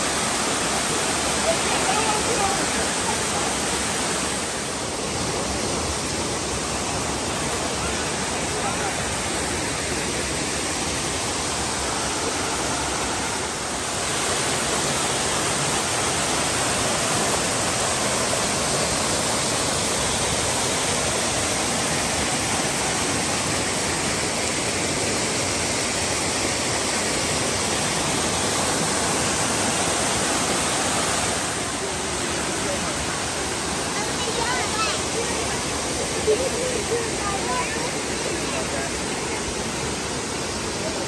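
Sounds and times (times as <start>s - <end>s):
waterfall rushing: 0.0s - 41.0s.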